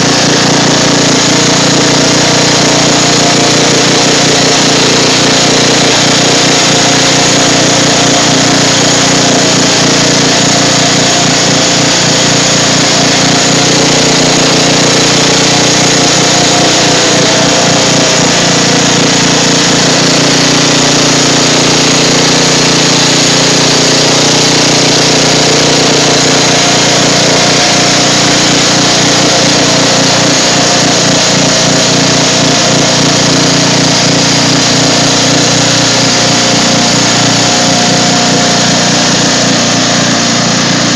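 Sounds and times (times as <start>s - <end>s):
mower driving through water: 0.0s - 40.9s
riding mower engine running: 0.0s - 40.9s.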